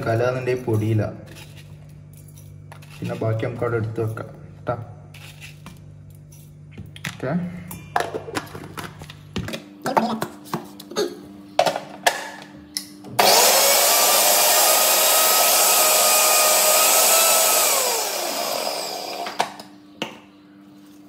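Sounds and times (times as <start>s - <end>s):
mixer grinder motor grinding: 13.2s - 19.7s.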